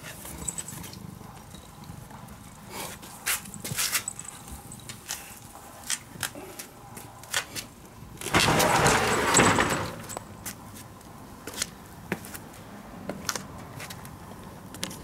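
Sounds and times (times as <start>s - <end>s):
wooden sliding door rolling open: 8.2s - 10.4s.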